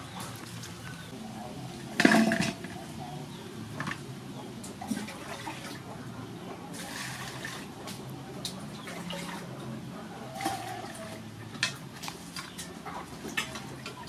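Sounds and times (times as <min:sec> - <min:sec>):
water splashing in a basin: 0:04.8 - 0:05.9, 0:06.7 - 0:08.0.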